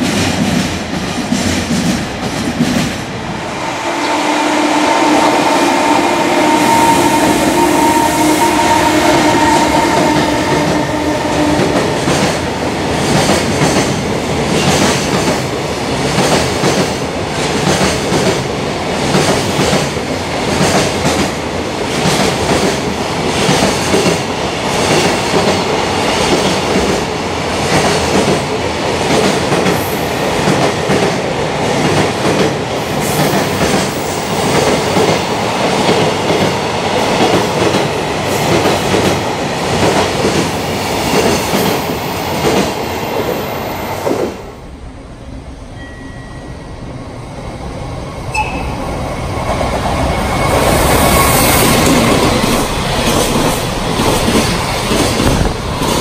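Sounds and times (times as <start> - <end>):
train wheels clacking on rails: 0.0 - 3.2, 4.8 - 44.4, 48.4 - 56.0.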